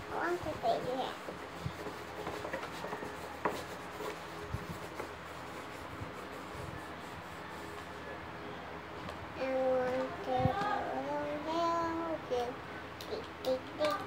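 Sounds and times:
steady low hum: 0:00.0 - 0:14.0
pencil scratching on paper: 0:01.1 - 0:08.0.

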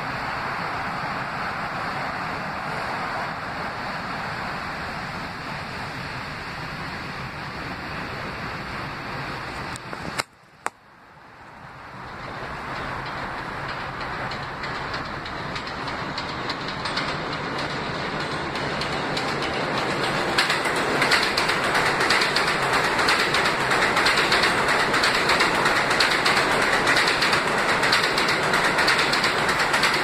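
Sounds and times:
steady rushing noise: 0:00.0 - 0:30.0
subway train rumble: 0:00.0 - 0:30.0
wheel clicks over rail joints: 0:11.5 - 0:30.0.

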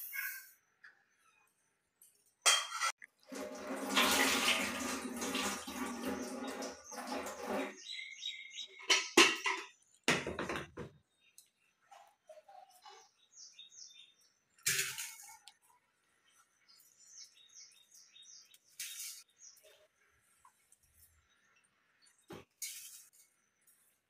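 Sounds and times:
tap water running: 0:03.0 - 0:08.0
water splashing: 0:03.2 - 0:07.8.

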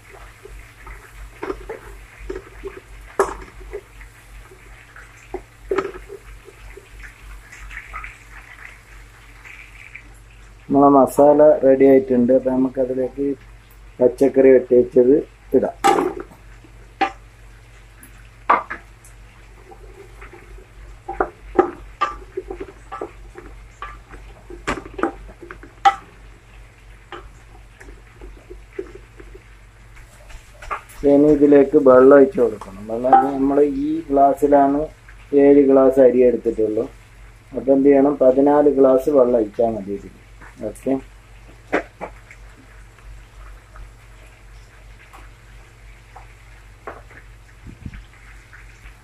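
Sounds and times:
wooden spoon stirring in metal pot: 0:00.0 - 0:10.1, 0:15.6 - 0:35.2
masala frying: 0:00.0 - 0:49.0
wooden spatula scraping pot: 0:00.2 - 0:03.9, 0:19.6 - 0:26.2
spoon knocking against pot: 0:33.1 - 0:33.4.

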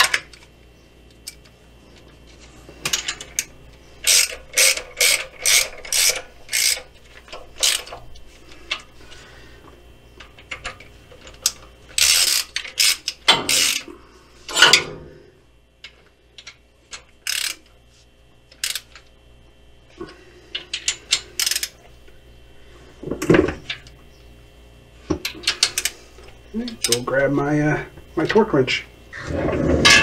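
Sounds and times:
socket ratchet clicking: 0:02.9 - 0:06.9, 0:11.4 - 0:13.9, 0:20.8 - 0:21.8.

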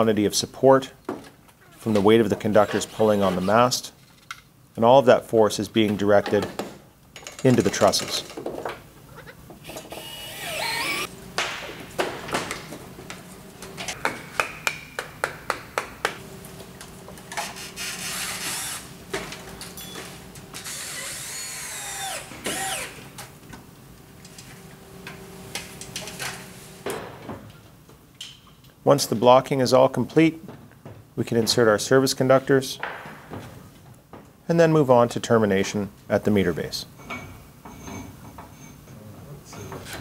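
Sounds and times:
cordless drill whirring: 0:09.7 - 0:11.1, 0:17.8 - 0:18.8, 0:20.6 - 0:23.0.

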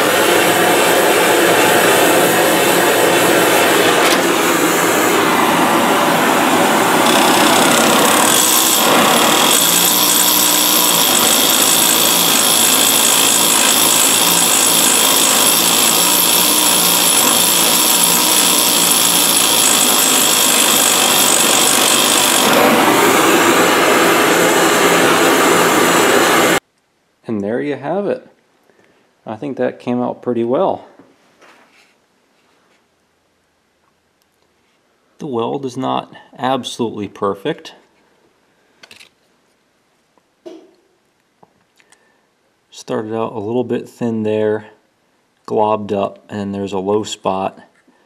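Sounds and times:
stick welding arc: 0:06.9 - 0:26.6.

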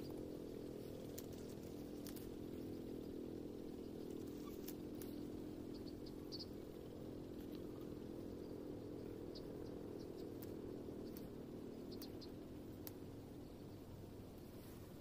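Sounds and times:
rustling of leafy twigs: 0:00.0 - 0:05.4
steady low hum: 0:00.0 - 0:15.0
faint high ticks: 0:10.1 - 0:11.3, 0:11.9 - 0:13.0.

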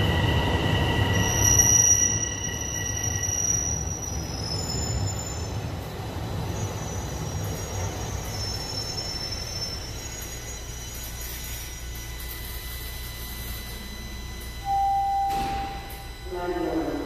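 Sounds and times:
high-pitched wheel squeal: 0:00.0 - 0:05.7, 0:06.5 - 0:11.7.

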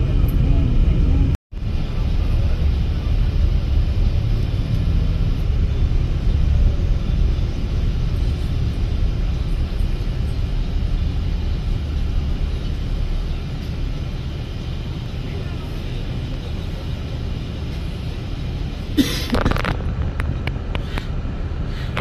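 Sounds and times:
coach engine and road rumble: 0:00.0 - 0:22.0.

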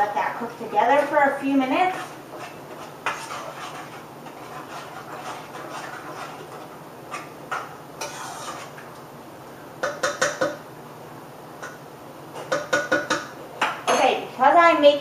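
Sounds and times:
utensil stirring thick stew: 0:01.0 - 0:09.1.

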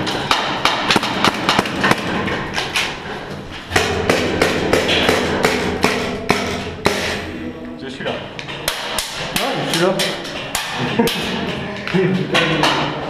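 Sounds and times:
pellets striking hard surfaces: 0:00.0 - 0:07.4, 0:08.4 - 0:11.6
steady low hum: 0:00.0 - 0:12.3
airsoft gunfire: 0:00.4 - 0:02.1.

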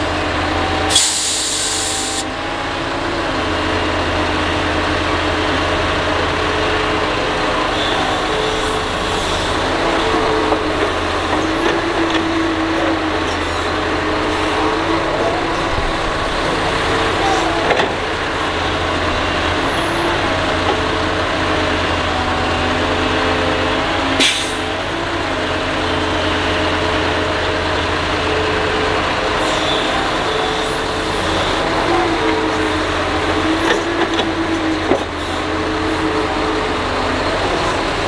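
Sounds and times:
excavator diesel engine working: 0:00.0 - 0:38.0
brief sharp hiss: 0:00.9 - 0:02.2.

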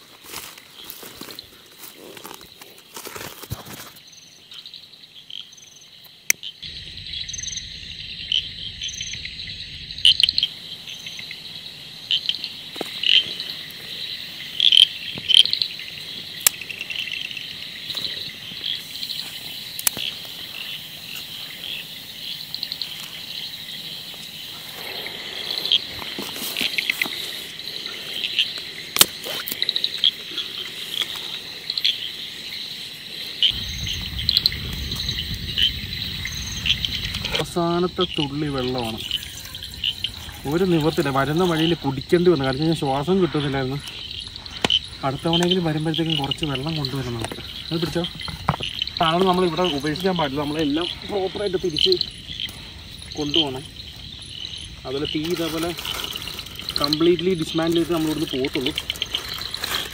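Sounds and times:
crickets chirring: 0:00.0 - 0:59.9
insect pulsed trills: 0:03.9 - 0:59.9
sharp insect clicks: 0:12.1 - 0:23.5, 0:28.2 - 0:32.6, 0:43.8 - 0:59.9.

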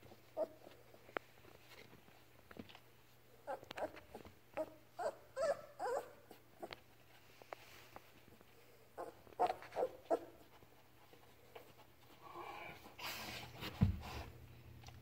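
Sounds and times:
puppy whimpering: 0:00.4 - 0:00.8, 0:03.4 - 0:06.8, 0:09.0 - 0:10.4.

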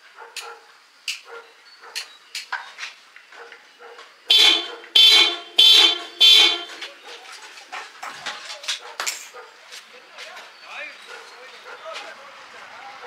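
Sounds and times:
vehicle horn blasts: 0:04.3 - 0:06.8.

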